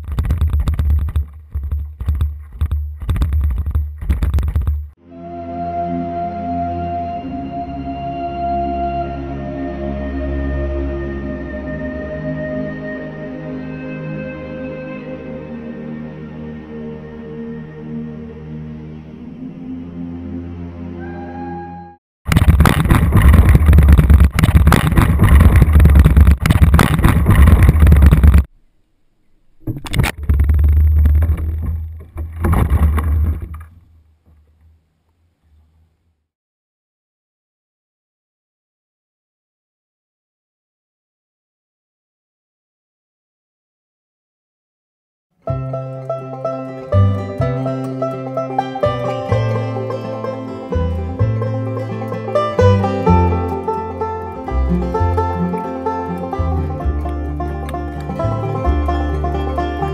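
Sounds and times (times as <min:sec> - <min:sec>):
ambient music with drone: 0:05.0 - 0:22.0, 0:45.5 - 0:59.9
heavy low rumble: 0:22.3 - 0:28.5, 0:29.5 - 0:34.8
kayak splashing and scraping: 0:22.3 - 0:28.5, 0:29.6 - 0:34.6.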